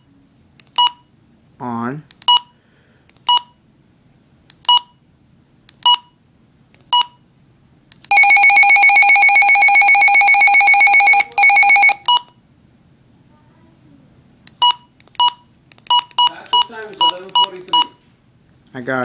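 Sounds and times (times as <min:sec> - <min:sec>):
rapidly pulsing alarm tone: 0:08.1 - 0:12.0.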